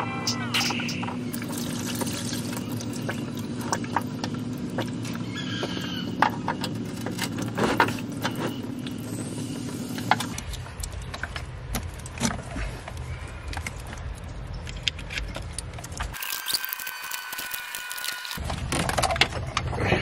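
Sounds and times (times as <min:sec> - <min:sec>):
fluid pouring and dripping: 0:01.3 - 0:05.2, 0:16.2 - 0:18.4.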